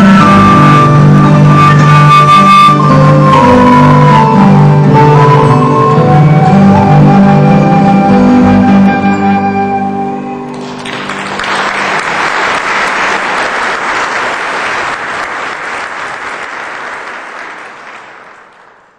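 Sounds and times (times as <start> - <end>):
audience applause: 10.5 - 18.9.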